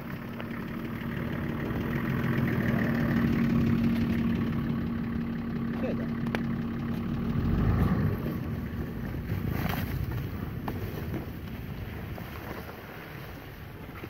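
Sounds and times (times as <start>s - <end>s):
car engine under load: 0.0s - 14.0s
branches scraping car body: 7.8s - 14.0s.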